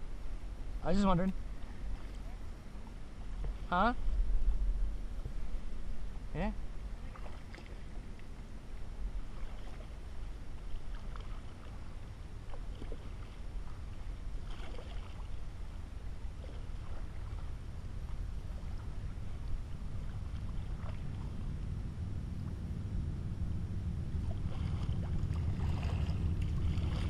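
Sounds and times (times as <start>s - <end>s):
low rumble: 0.0s - 27.0s
paddle splashing in water: 1.5s - 2.4s, 7.0s - 8.3s, 9.2s - 15.5s, 16.3s - 21.4s, 24.2s - 27.0s.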